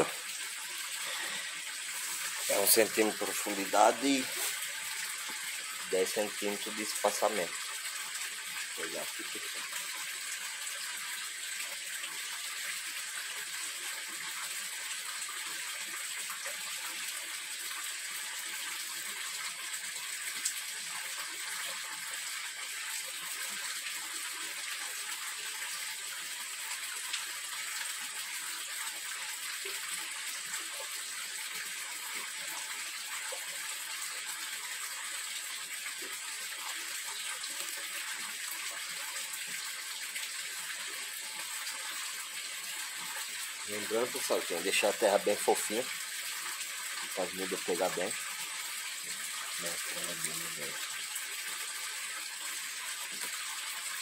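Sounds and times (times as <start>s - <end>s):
steady hiss: 0.9s - 4.8s.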